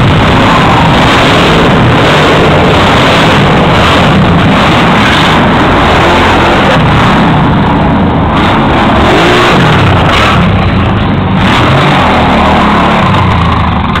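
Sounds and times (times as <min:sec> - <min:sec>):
atv engine revving: 0:00.0 - 0:14.0.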